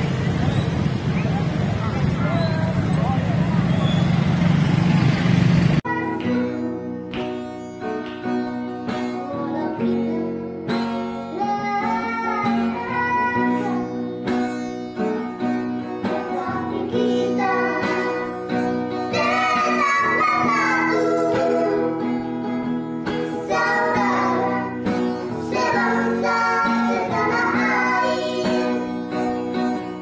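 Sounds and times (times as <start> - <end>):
plucked acoustic guitar: 5.8 - 30.0
boys singing together: 16.0 - 22.0, 23.1 - 29.0.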